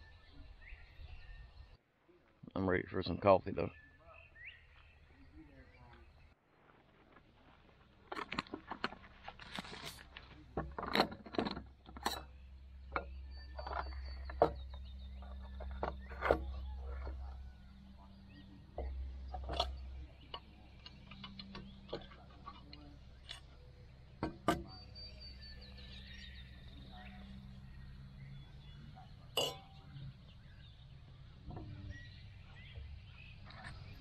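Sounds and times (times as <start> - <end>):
metal pot clinking and knocking: 29.4 - 29.8.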